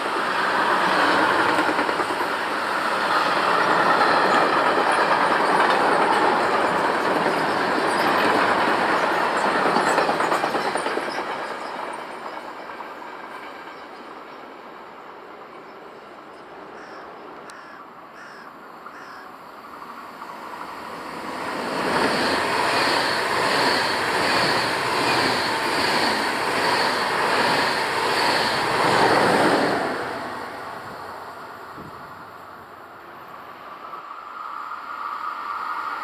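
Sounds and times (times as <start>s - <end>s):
train passing at speed: 0.0s - 36.0s.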